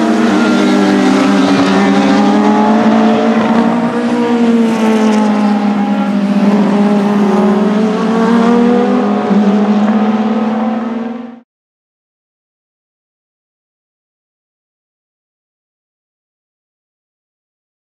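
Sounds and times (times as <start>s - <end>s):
racing car engines: 0.0s - 11.4s.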